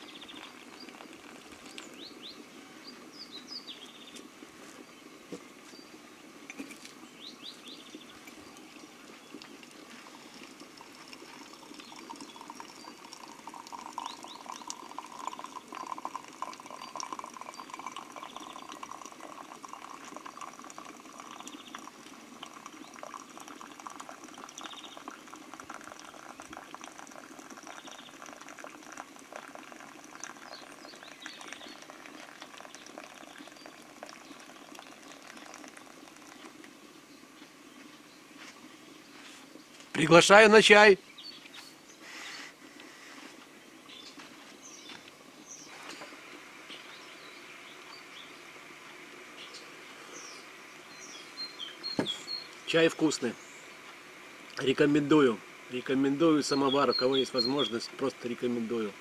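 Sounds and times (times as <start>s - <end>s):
water pouring into a cup: 0.0s - 3.1s, 6.4s - 37.0s, 54.5s - 59.0s
water boiling: 0.0s - 40.9s, 43.5s - 59.0s.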